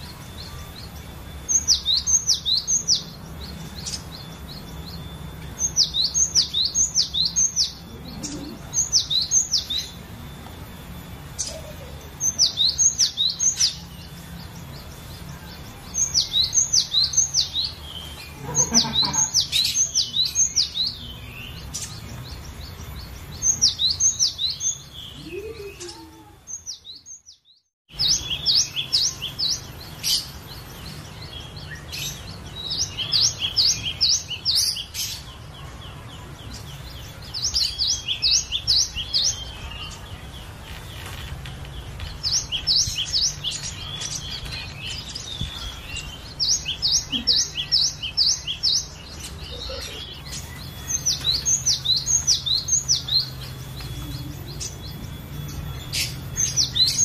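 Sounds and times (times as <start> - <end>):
bird singing high whistled notes: 42.2 - 57.0.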